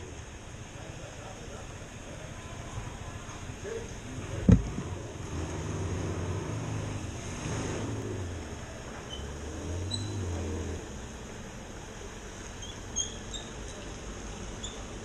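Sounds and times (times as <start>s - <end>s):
vehicle engine running: 0.0s - 15.0s
sharp thump: 4.4s - 4.8s.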